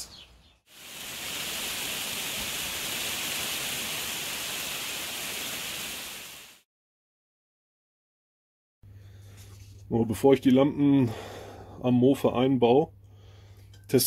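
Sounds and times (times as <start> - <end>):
rain falling: 0.7 - 6.6.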